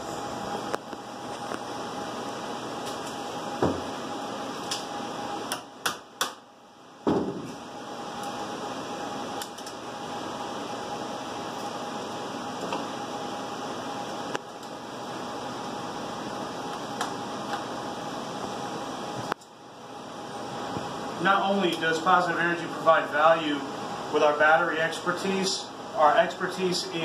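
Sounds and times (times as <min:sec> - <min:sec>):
fan and ventilation hum: 0:00.0 - 0:27.0.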